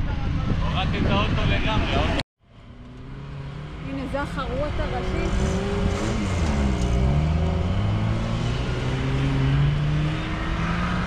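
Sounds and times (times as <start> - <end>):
off-road vehicle engine revving: 2.6 - 11.0.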